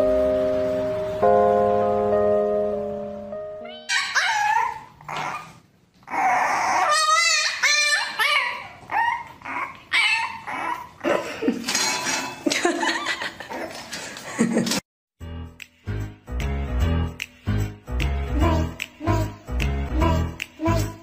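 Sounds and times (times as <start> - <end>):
music: 0.0 - 3.9, 15.2 - 21.0
puppy whining and yipping: 3.7 - 11.0.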